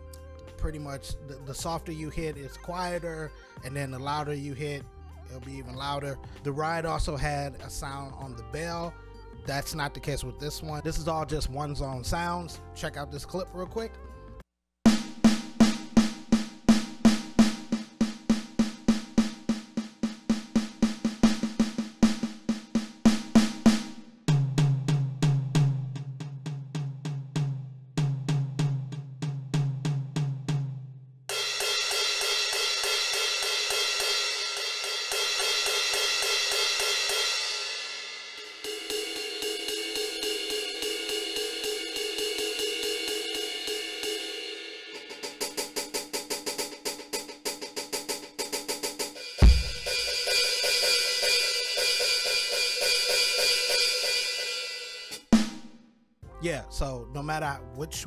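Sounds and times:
electronic cymbals: 31.4 - 46.4, 49.0 - 55.2
electronic drum pad hits: 31.5 - 46.3, 49.2 - 54.4
low tom hits: 49.4 - 50.0.

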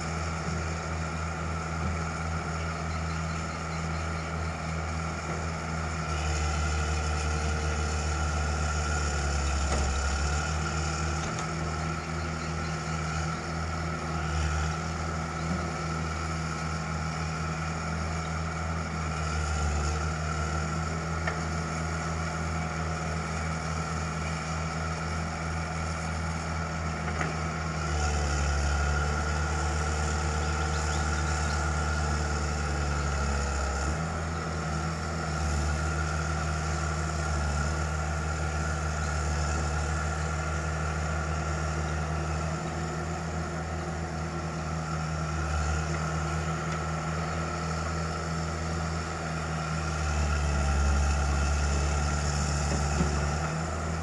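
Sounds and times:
excavator diesel engines running: 0.0 - 54.0.

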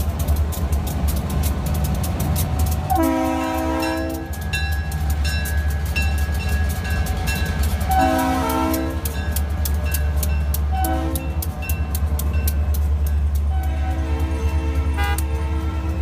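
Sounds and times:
locomotive engine rumbling: 0.0 - 16.0
air horn blasts: 2.9 - 4.3, 7.9 - 9.1, 10.7 - 11.4, 13.5 - 16.0.

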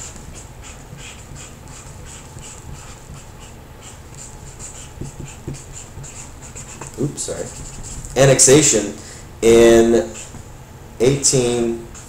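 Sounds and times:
marker scratching on paper: 0.0 - 8.5, 9.6 - 10.4.

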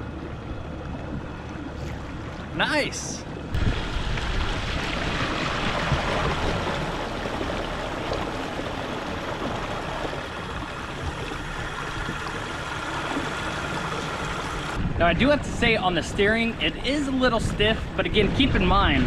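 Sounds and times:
water rushing off kayak hull: 1.7 - 14.8.

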